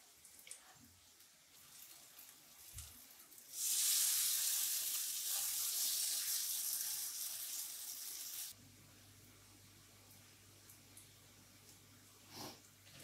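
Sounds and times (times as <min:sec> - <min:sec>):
batter sizzling in hot oil: 0:00.0 - 0:08.6.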